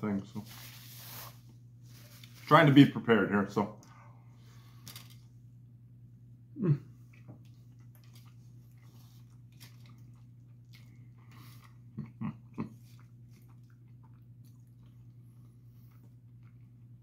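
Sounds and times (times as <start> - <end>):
steady low hum: 0.0 - 17.0
person humming with enjoyment: 6.6 - 6.9
person chewing food: 7.0 - 17.0.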